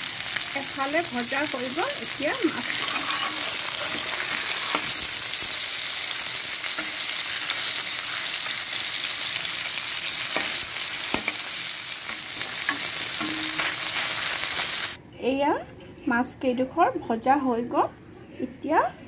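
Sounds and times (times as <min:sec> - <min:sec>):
fish sizzling in oil: 0:00.0 - 0:15.0.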